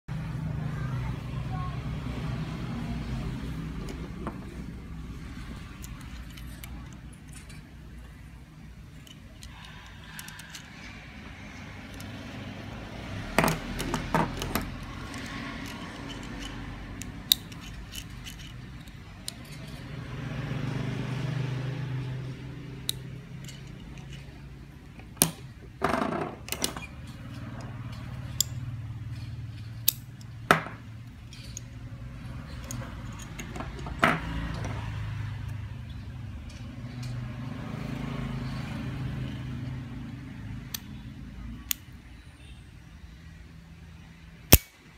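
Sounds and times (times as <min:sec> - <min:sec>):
metal carabiners clinking: 0:05.4 - 0:07.9, 0:13.4 - 0:20.0, 0:22.8 - 0:25.4, 0:26.4 - 0:34.7.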